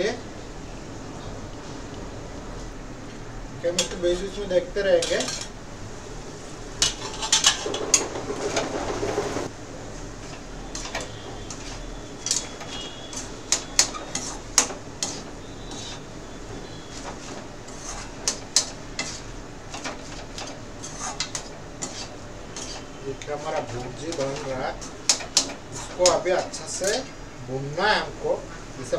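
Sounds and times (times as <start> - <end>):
metal spatula scraping pan: 6.8 - 9.5, 10.2 - 27.1.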